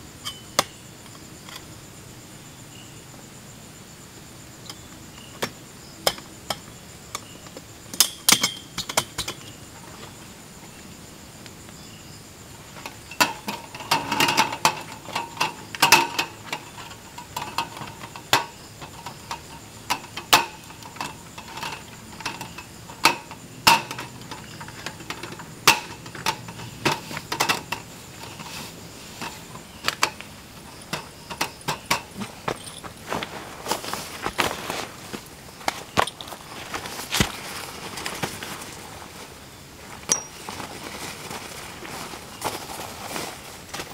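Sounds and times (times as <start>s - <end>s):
high insect trill: 0.0s - 43.9s
metal table clicking and rattling: 12.8s - 28.6s, 29.2s - 32.9s.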